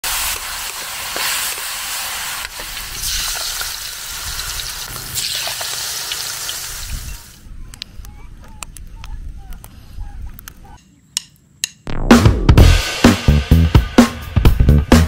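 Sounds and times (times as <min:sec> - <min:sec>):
oil sizzling: 0:00.0 - 0:07.4.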